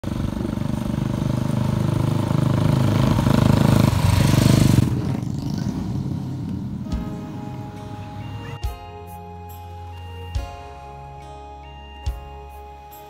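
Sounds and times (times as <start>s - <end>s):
motorcycle and scooter engines: 0.0s - 13.0s.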